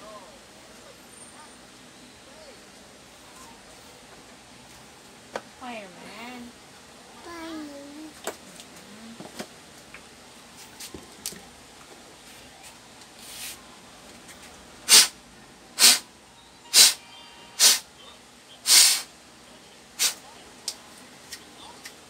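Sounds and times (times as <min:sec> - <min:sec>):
air blower puffs: 0:14.9 - 0:15.2, 0:15.8 - 0:16.0, 0:16.7 - 0:17.0, 0:17.6 - 0:17.8, 0:18.6 - 0:19.1.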